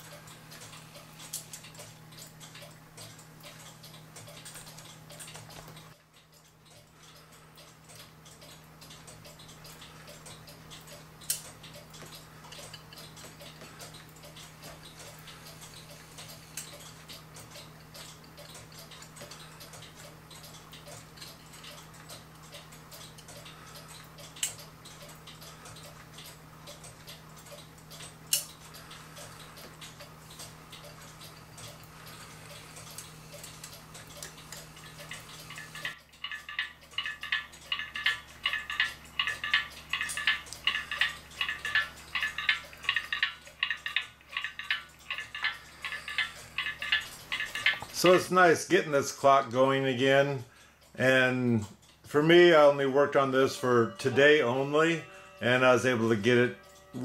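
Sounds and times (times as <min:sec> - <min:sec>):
clock ticking: 0:00.0 - 0:57.0
loud ticking through speaker: 0:28.7 - 0:57.0.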